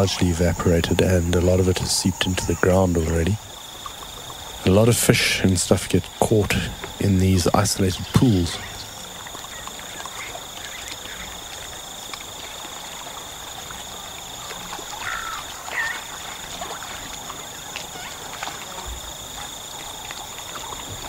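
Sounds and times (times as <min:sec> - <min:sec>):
high-pitched insect chorus: 0:00.0 - 0:21.0
short animal calls: 0:15.0 - 0:16.9.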